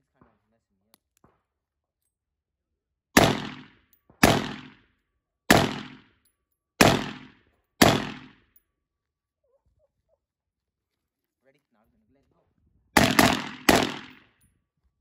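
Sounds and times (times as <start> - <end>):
pistol shots: 3.2 - 4.8, 5.5 - 6.1, 6.8 - 8.4, 13.0 - 14.3.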